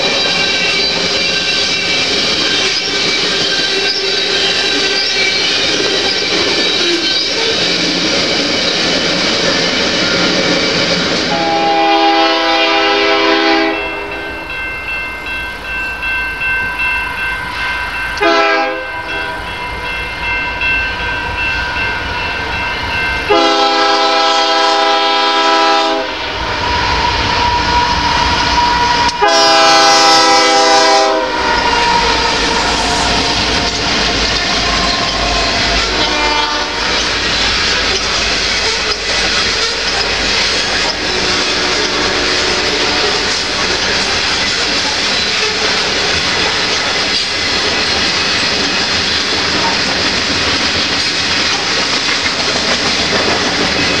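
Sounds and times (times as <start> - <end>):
freight cars rumbling and clacking: 0.0 - 11.4, 36.9 - 42.3, 43.1 - 54.0
locomotive horn blasts: 11.3 - 14.3, 18.2 - 19.0, 23.3 - 26.2, 29.2 - 32.4, 35.9 - 37.2, 40.9 - 43.5.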